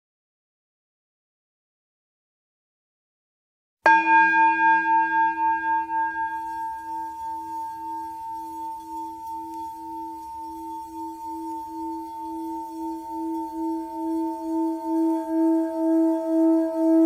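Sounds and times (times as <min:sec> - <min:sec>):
singing bowl ringing: 0:03.9 - 0:17.0.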